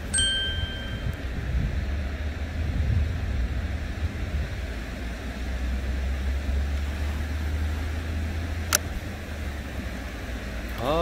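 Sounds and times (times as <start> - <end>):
sharp ringing click: 0.0 - 1.2
low rumble and hiss by water: 0.0 - 11.0.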